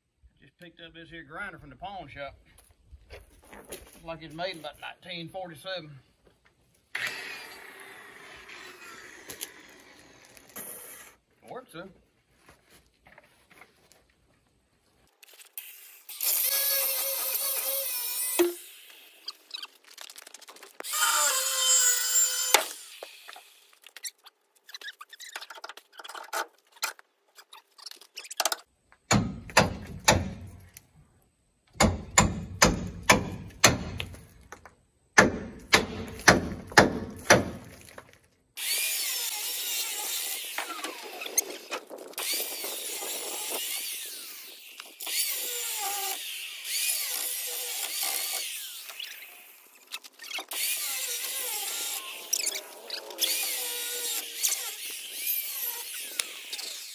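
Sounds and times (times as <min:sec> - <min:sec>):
angle grinder cutting steel: 0:07.0 - 0:11.1, 0:15.4 - 0:19.7, 0:20.8 - 0:23.8, 0:38.6 - 0:56.9
sharp knocks on metal: 0:29.1 - 0:30.4, 0:31.8 - 0:34.0.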